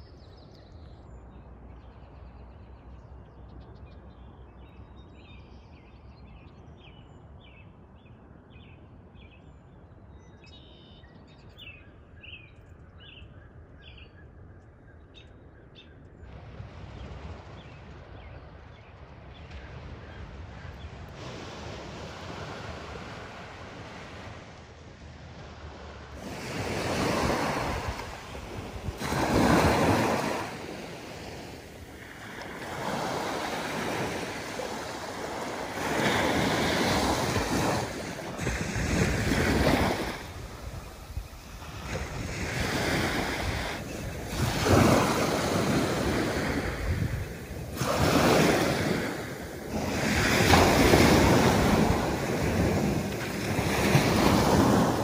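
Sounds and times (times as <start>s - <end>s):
wind buffeting microphone: 15.2s - 55.0s
small waves breaking on beach: 16.3s - 55.0s.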